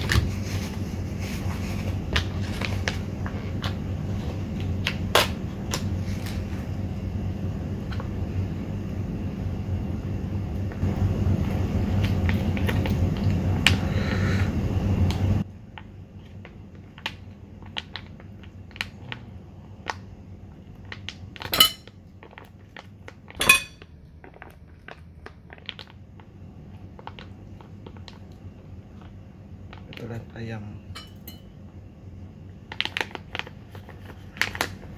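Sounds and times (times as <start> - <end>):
foil sachet crinkling: 32.7 - 34.9.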